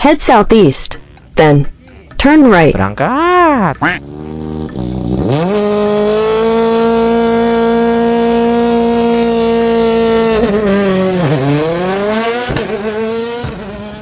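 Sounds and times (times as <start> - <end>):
motor revving: 3.9 - 14.0.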